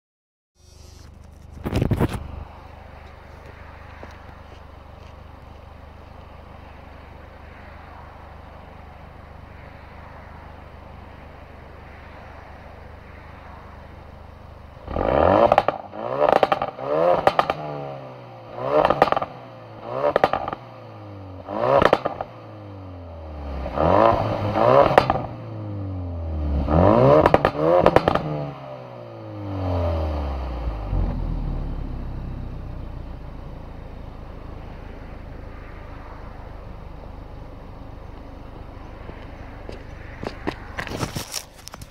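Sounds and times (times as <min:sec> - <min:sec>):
car engine idling and revving: 0:00.6 - 0:41.9
exhaust pops and crackles: 0:00.8 - 0:02.4, 0:15.5 - 0:17.6, 0:18.8 - 0:19.3, 0:20.1 - 0:20.6, 0:27.2 - 0:28.3, 0:40.2 - 0:41.9.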